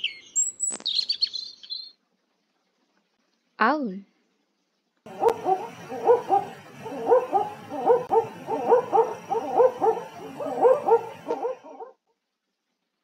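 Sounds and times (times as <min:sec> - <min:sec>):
owl hooting: 0:05.1 - 0:11.9.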